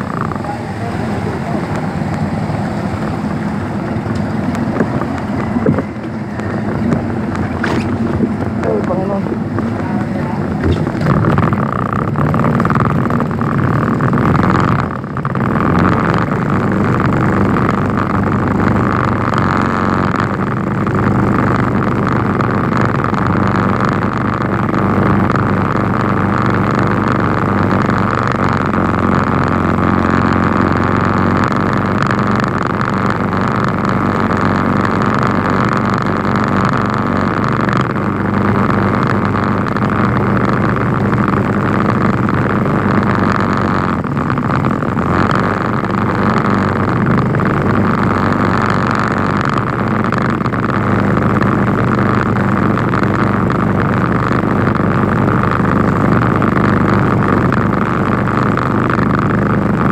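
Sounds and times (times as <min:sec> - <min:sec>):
water rushing: 0:00.0 - 0:13.7
vehicle engine running: 0:00.0 - 0:59.9.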